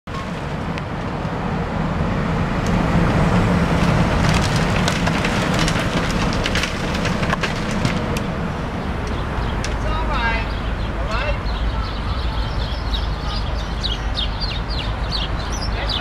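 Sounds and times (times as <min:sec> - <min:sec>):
wood splintering: 0:03.6 - 0:08.3.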